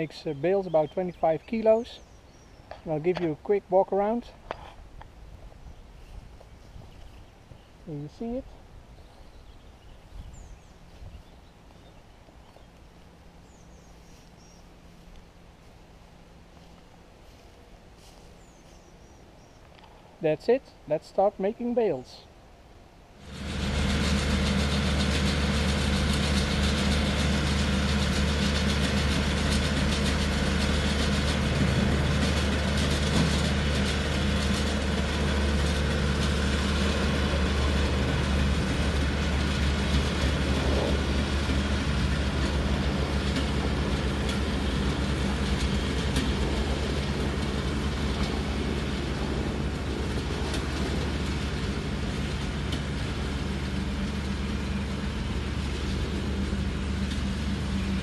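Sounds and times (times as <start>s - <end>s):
diesel tractor running under load: 23.2s - 58.0s.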